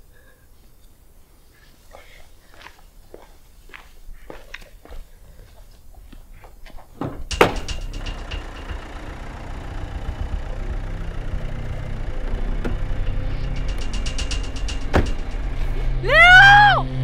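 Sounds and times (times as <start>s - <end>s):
car engine and tyre noise: 7.4s - 16.0s.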